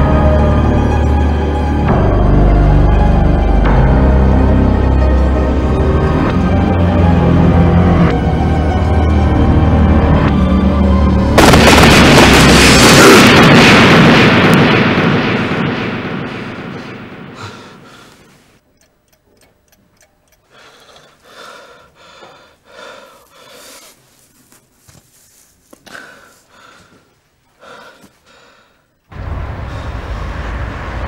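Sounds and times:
loud low boom: 11.4s - 18.3s, 29.1s - 31.0s
man gasping and sobbing: 20.4s - 24.0s.

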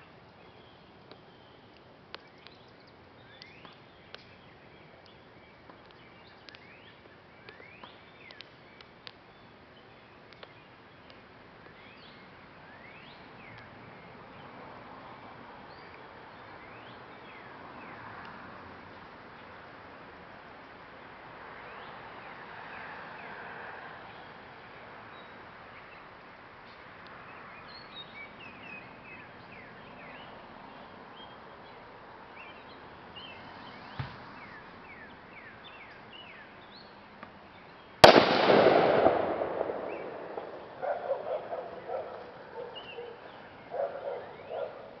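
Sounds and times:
birds chirping: 0.0s - 14.6s, 25.1s - 45.0s.

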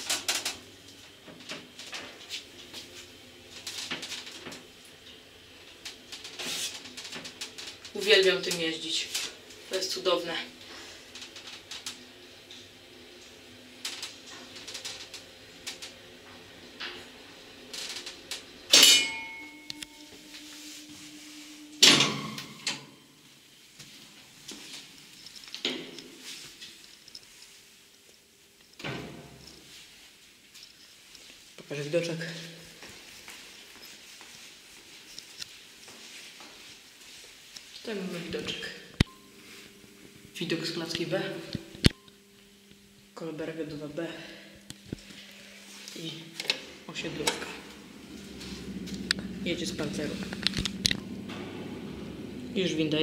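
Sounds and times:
lift motor low hum: 11.0s - 23.3s, 44.6s - 53.0s
metallic lift clunk with ring: 18.7s - 20.2s
rattles: 47.1s - 53.0s
lift door unlatching clunk: 50.2s - 52.4s.

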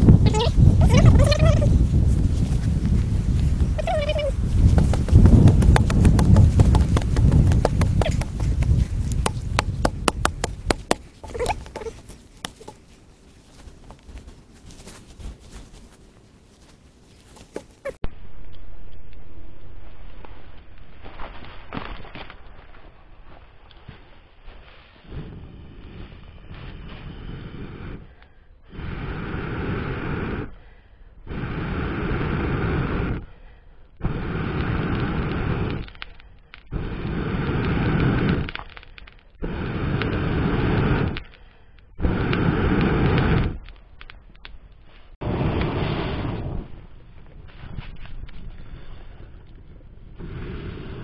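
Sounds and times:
person blowing on embers: 0.0s - 13.8s, 21.1s - 51.0s
scraping loose dirt by hand: 0.4s - 16.0s
stick knocking into dry soil: 4.7s - 12.8s.

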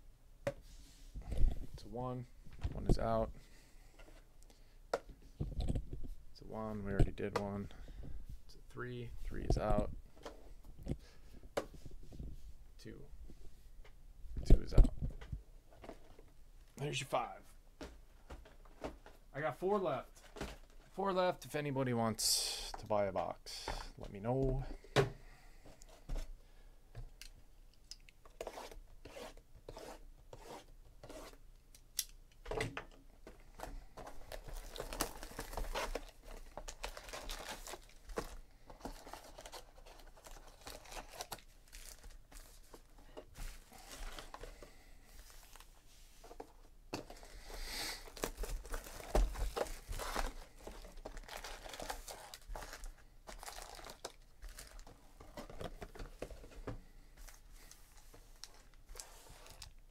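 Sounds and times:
card packs crinkling: 33.6s - 44.6s, 48.0s - 56.5s, 57.2s - 59.8s.

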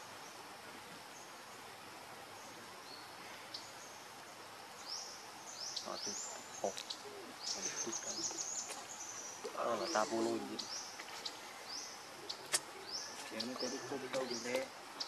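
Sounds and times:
birds chirping: 0.0s - 15.0s
forest background hiss: 0.0s - 15.0s.

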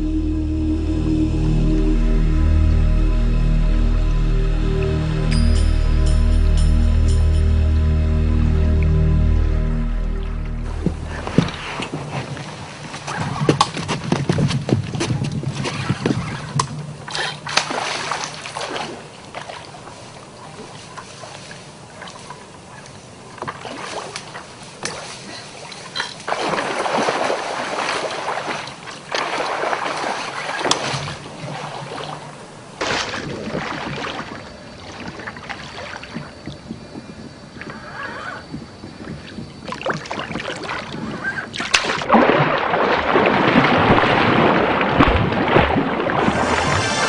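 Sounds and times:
water splashing beside a boat: 10.6s - 47.0s.

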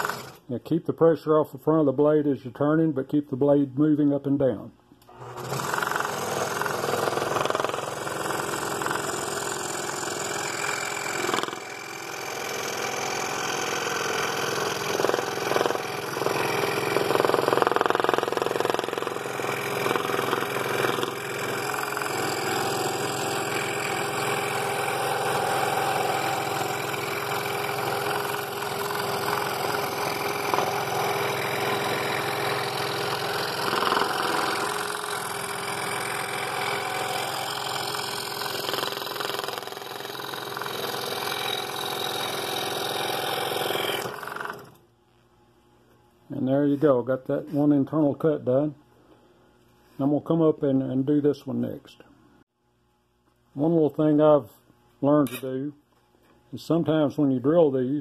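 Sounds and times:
scroll saw cutting wood: 0.0s - 0.4s, 5.1s - 44.8s.

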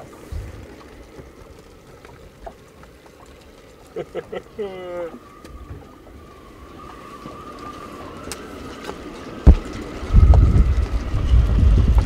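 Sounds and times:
wind buffeting microphone: 4.4s - 12.0s.

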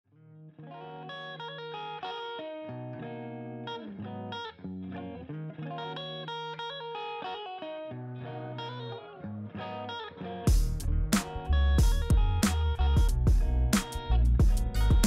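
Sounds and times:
plucked guitar music: 0.1s - 15.0s
bass line: 10.5s - 15.0s.

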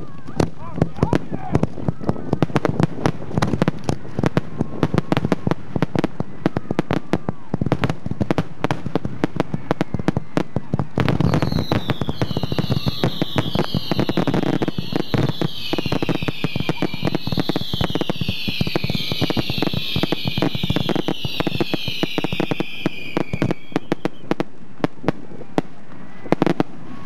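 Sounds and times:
dense crackling pops: 0.0s - 27.0s
wind on microphone: 0.0s - 27.0s
fireworks mortar launch thumps: 0.2s - 6.7s
fireworks whistles falling in pitch: 9.4s - 24.4s.

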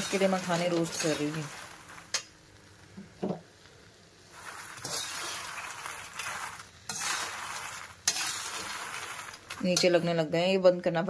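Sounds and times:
metal spatula scraping nuts: 0.0s - 2.2s, 4.3s - 10.2s.

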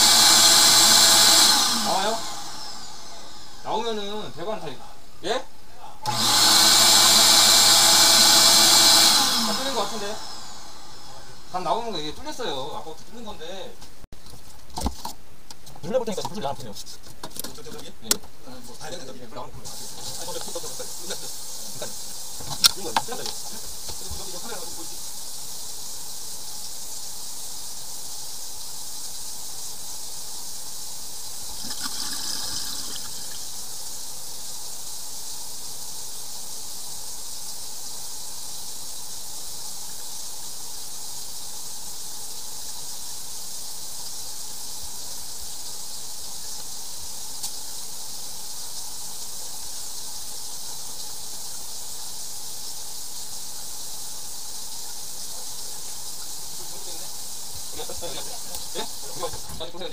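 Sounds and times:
water rushing through drain pipe: 19.6s - 59.9s.

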